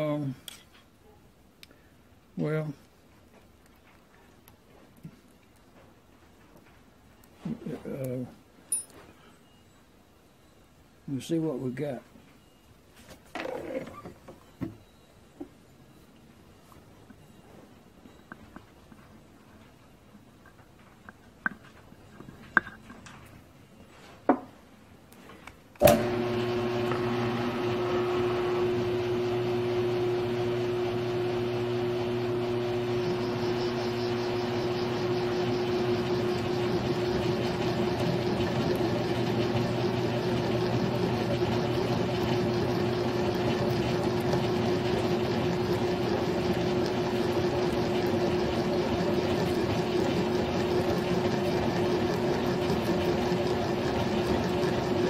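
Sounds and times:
mill-drill motor humming: 25.8s - 55.0s.

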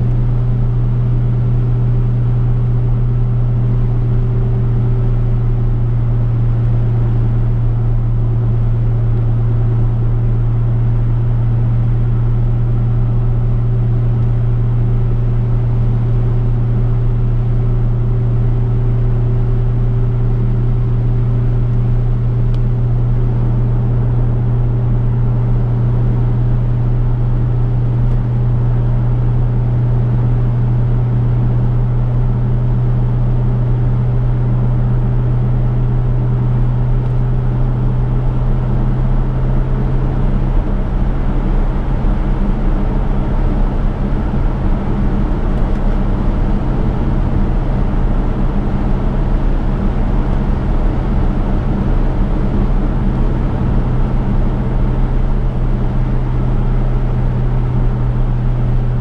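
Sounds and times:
car engine droning: 0.0s - 59.0s.

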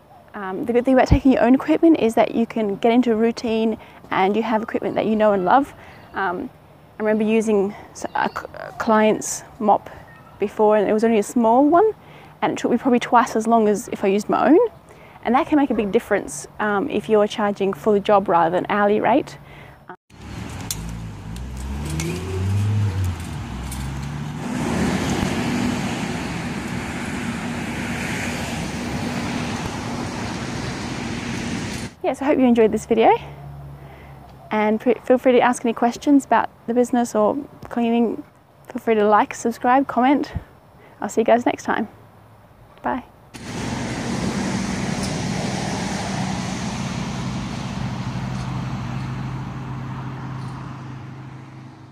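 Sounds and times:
traffic noise: 0.0s - 51.9s
vehicle engine rising in pitch: 20.1s - 31.9s, 43.4s - 51.9s.

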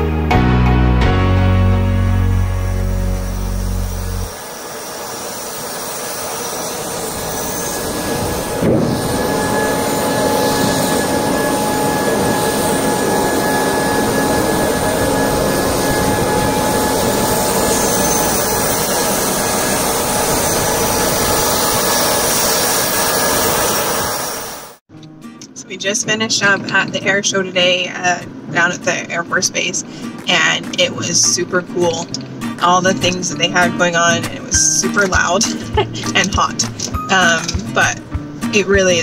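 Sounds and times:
jet turbine rush and whine: 2.2s - 24.8s.

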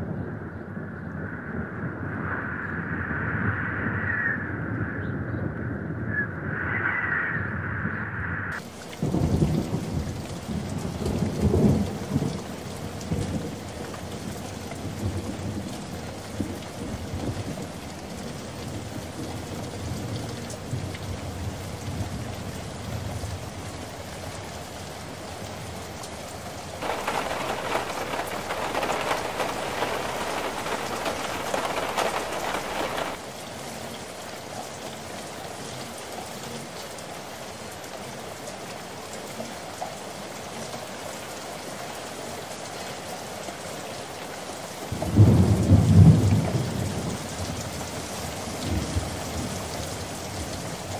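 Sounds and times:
heavy rain: 8.6s - 50.9s
thunder rumbles: 26.8s - 33.2s.

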